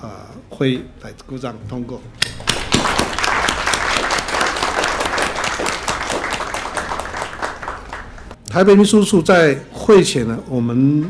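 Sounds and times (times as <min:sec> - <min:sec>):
crowd applauding: 0:02.2 - 0:08.4.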